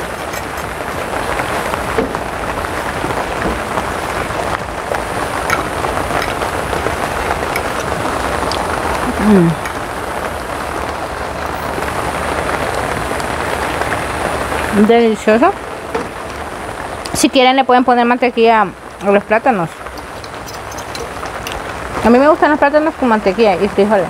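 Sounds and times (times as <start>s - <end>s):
person going mmm: 7.7s - 9.8s
fork clicking on a plate: 19.9s - 21.5s.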